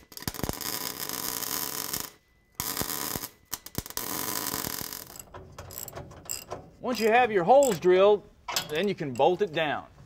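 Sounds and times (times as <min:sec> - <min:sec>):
welding arc hissing and crackling: 0:00.0 - 0:05.3.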